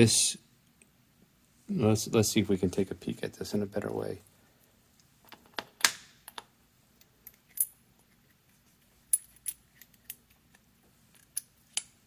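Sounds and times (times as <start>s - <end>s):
metal rings clinking: 9.1s - 10.3s.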